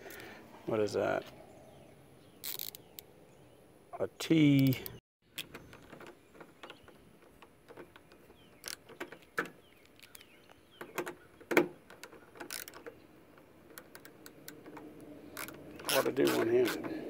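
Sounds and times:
ratchet handle clicking: 2.4s - 3.0s, 12.0s - 12.9s, 13.7s - 16.9s.

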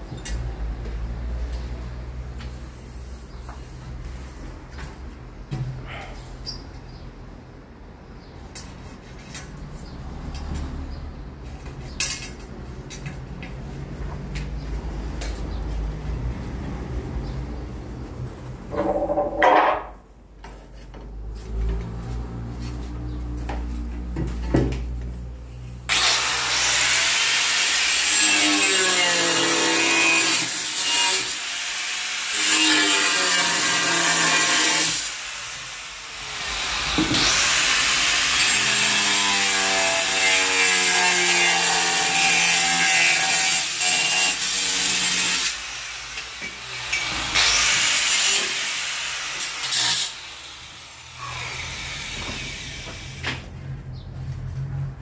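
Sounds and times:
angle grinder cutting tile: 25.9s - 53.2s.

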